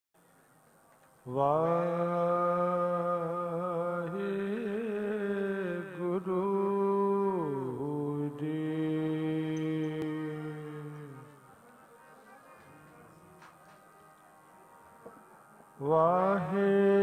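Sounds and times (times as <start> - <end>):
man singing devotional chant: 1.3 - 13.6, 15.7 - 17.0.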